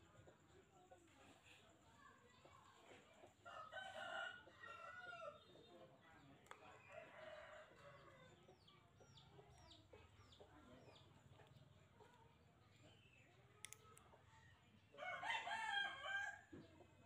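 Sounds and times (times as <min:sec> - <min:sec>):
small bird chirping: 0:07.8 - 0:14.9.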